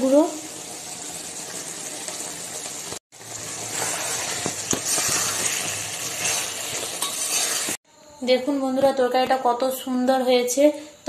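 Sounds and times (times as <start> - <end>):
curry sizzling in a pan: 0.0 - 7.8
spoon scraping a pan: 3.6 - 7.8.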